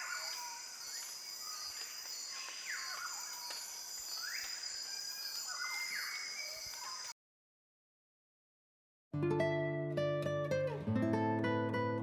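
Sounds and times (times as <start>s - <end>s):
insects buzzing high-pitched: 0.0s - 7.1s.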